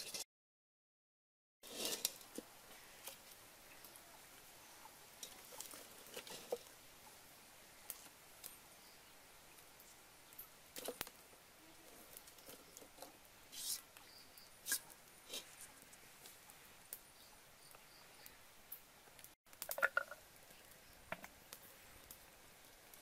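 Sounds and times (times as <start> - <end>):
firewood sticks rustling: 1.6 - 4.0, 5.2 - 6.8
wood fire crackling: 1.6 - 23.0.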